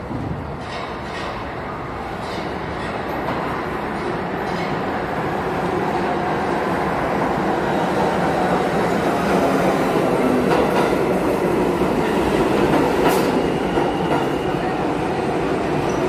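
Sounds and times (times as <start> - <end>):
subway train wheels rumbling on rail: 0.0 - 16.0.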